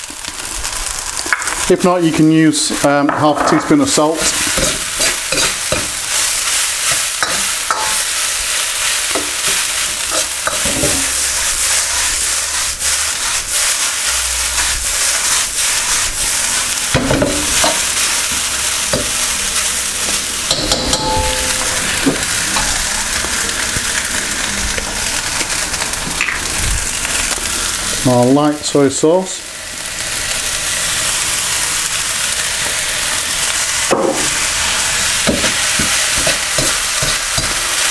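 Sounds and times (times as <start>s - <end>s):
rice sizzling in a wok: 0.0s - 37.9s
metal ladle scraping a wok: 4.2s - 6.3s, 9.1s - 12.1s
wok being tossed: 20.5s - 22.9s.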